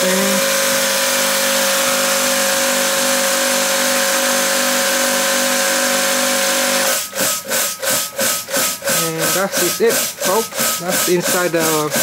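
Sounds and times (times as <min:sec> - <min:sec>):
person talking: 0:00.0 - 0:00.4, 0:08.9 - 0:12.0
pressure washer motor humming: 0:00.0 - 0:12.0
water jet hissing: 0:06.1 - 0:12.0.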